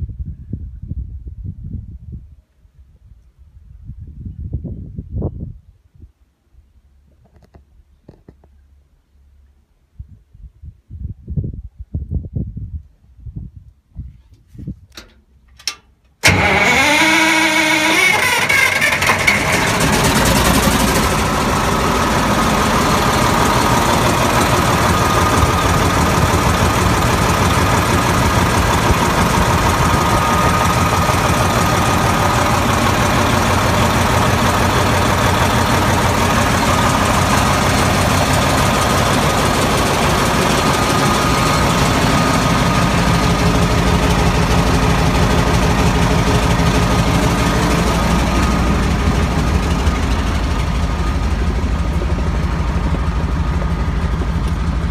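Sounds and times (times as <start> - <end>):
diesel engine idling: 16.2 - 54.9.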